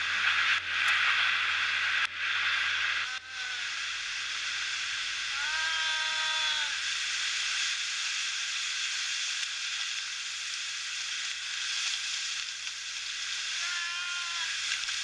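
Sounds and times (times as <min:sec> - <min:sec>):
short held pitched call: 0:13.6 - 0:14.6.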